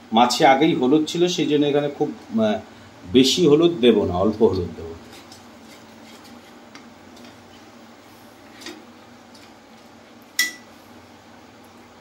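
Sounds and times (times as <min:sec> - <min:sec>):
wooden spatula stirring paste: 0:05.0 - 0:07.7
sharp metallic clink: 0:10.4 - 0:10.6.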